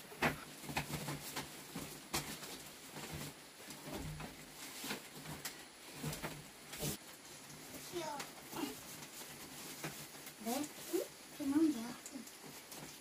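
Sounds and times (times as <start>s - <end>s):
bamboo bed knocking and creaking: 0.0s - 7.0s.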